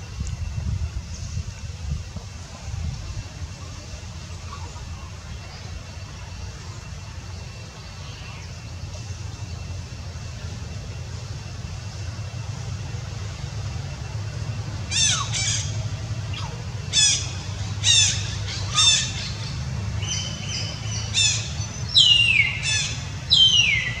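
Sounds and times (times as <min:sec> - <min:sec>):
steady low rumble: 0:00.0 - 0:24.0
infant monkey squealing: 0:14.9 - 0:19.4.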